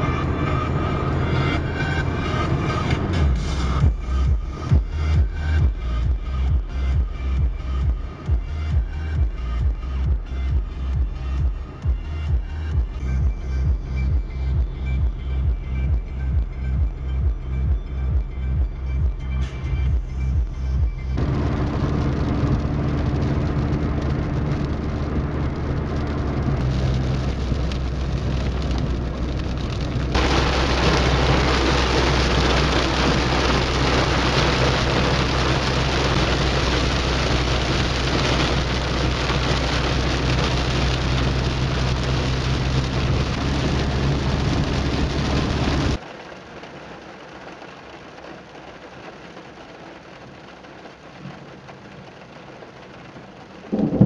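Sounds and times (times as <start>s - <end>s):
car engine hum: 0.0s - 54.0s
heavy rain on car roof: 0.0s - 54.0s.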